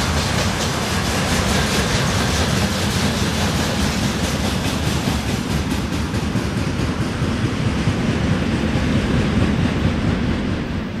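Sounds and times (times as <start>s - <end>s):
wheels clicking over rail joints: 0.0s - 8.3s
train wheels rumbling on rails: 0.0s - 11.0s.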